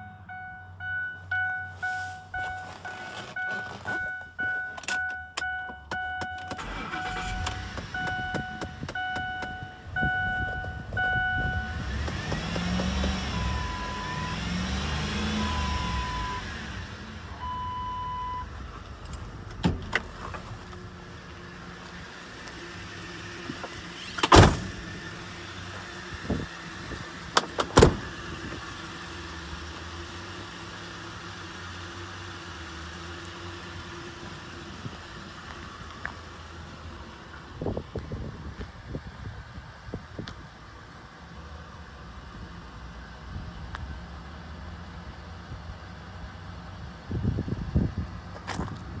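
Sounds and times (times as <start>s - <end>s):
dashboard warning chime: 0.0s - 11.9s, 13.3s - 14.4s, 15.4s - 16.5s, 17.4s - 18.5s
pickup engine running and revving: 6.6s - 17.6s, 18.4s - 49.0s.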